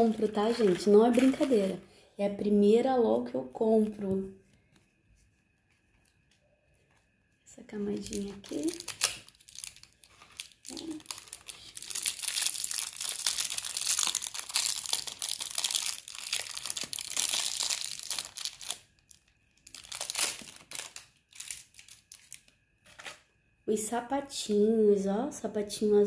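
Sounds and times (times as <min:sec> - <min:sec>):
wrapper crinkling and tearing: 0:00.0 - 0:01.8, 0:07.9 - 0:23.2.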